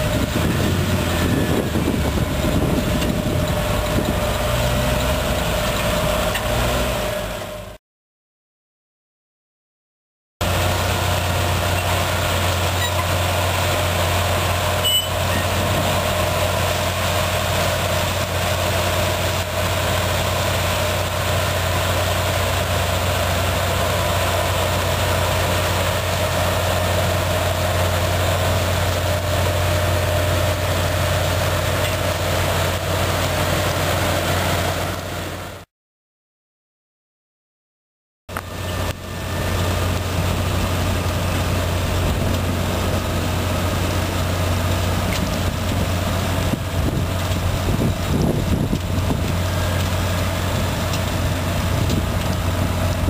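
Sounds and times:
potato harvester machine drone: 0:00.0 - 0:07.8, 0:10.4 - 0:35.7, 0:38.3 - 0:53.0
tractor diesel engines: 0:00.0 - 0:07.8, 0:10.4 - 0:35.7, 0:38.3 - 0:53.0.

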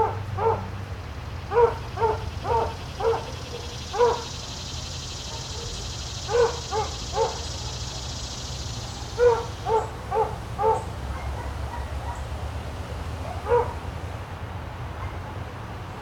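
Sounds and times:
dog barking: 0:00.0 - 0:00.7, 0:01.5 - 0:04.3, 0:05.3 - 0:07.5, 0:09.2 - 0:12.3, 0:13.2 - 0:13.8, 0:15.0 - 0:15.4.

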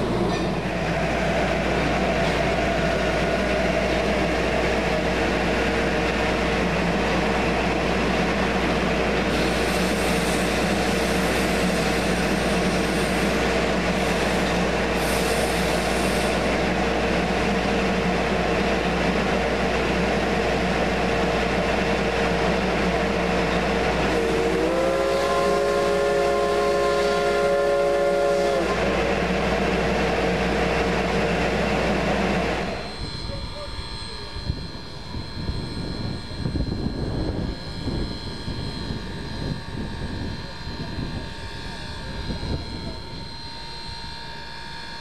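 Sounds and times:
train rumbling: 0:00.0 - 0:45.0
train horn chord: 0:24.0 - 0:29.0.

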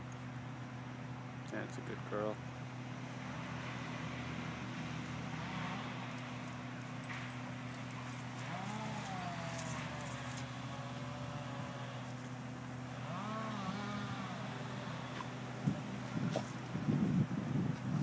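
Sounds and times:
steady low hum: 0:00.0 - 0:18.0
collar tags jingling: 0:04.7 - 0:10.9
dogs sniffing: 0:13.9 - 0:16.8.

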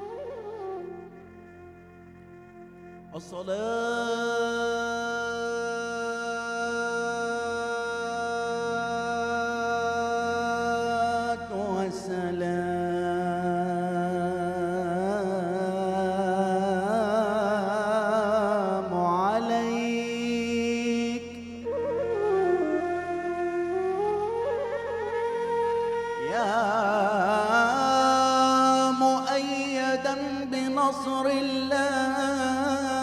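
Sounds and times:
man singing melismatic line: 0:03.2 - 0:22.1, 0:26.2 - 0:33.0.

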